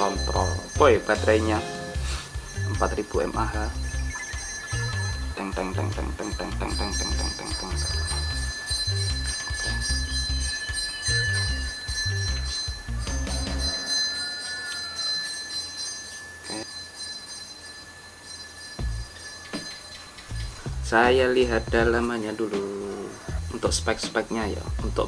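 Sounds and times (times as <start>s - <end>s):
high sustained tones: 0.0s - 24.8s
bass beat: 2.0s - 13.7s, 18.8s - 19.1s, 20.4s - 22.1s, 23.3s - 25.0s.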